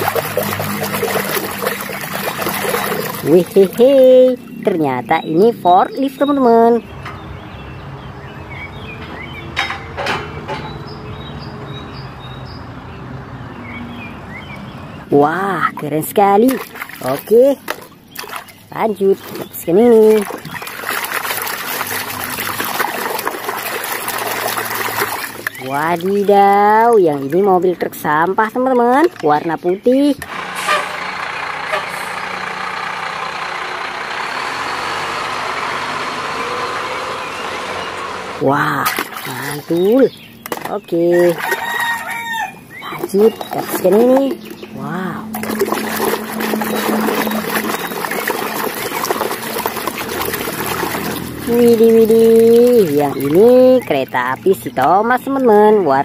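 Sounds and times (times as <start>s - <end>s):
diesel engine running: 0.0s - 16.4s, 29.1s - 40.5s, 42.0s - 56.0s
birds chirping faintly: 0.0s - 32.8s, 33.4s - 56.0s.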